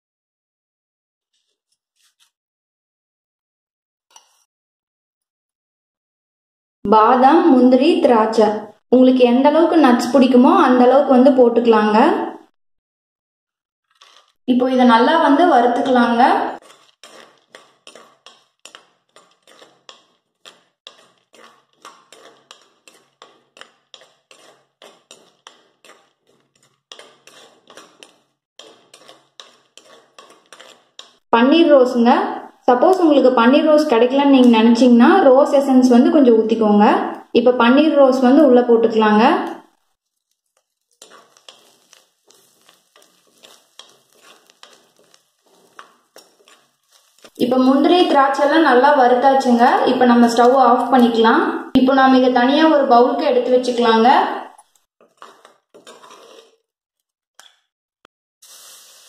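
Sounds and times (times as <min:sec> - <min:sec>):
metal spoon scraping a clay pot: 0:13.9 - 0:14.4, 0:15.3 - 0:31.2, 0:39.5 - 0:51.2, 0:53.3 - 0:56.7
faint sizzle: 0:40.1 - 0:48.9, 0:58.4 - 0:59.0.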